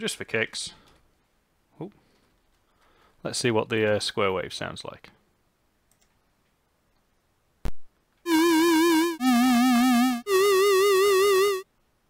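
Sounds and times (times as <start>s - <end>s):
wobbling square-wave synth tones: 8.3s - 11.6s.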